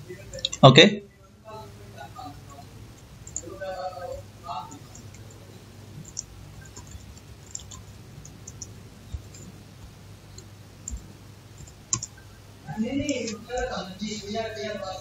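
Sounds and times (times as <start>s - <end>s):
low steady hum: 0.0s - 15.0s
keyboard keys clicking: 3.0s - 3.6s, 4.6s - 12.2s.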